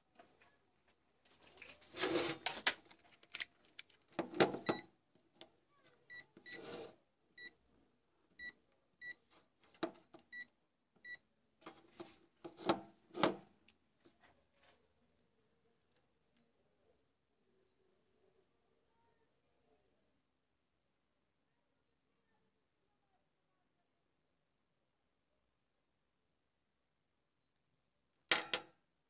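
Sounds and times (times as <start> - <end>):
multimeter beeps: 4.6 - 4.9, 6.1 - 6.6, 8.4 - 9.2.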